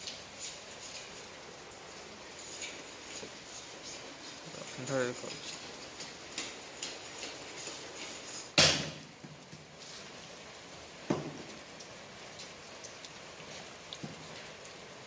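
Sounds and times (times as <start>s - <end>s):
sharp knocks: 8.6s - 9.0s.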